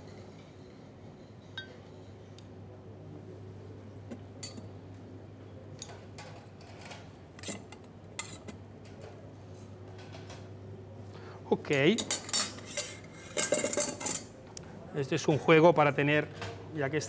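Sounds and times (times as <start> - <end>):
utensils clinking on plates: 11.7 - 14.3.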